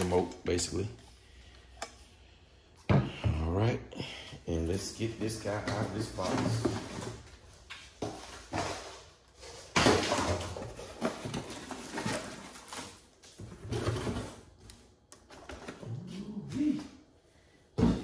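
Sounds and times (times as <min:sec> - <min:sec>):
cardboard packaging rustling: 0:08.1 - 0:14.5.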